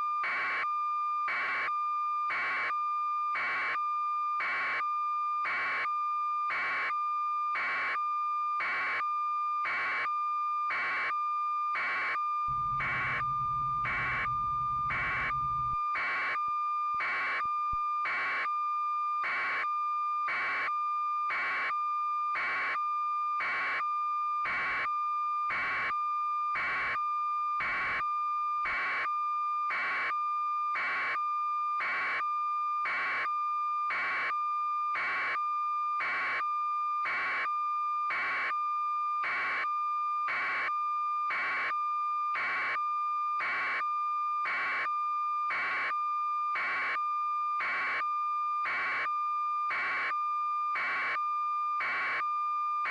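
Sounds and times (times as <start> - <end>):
steady high electronic tone: 12.5 - 15.8
pulsing electronic beep: 12.5 - 16.4.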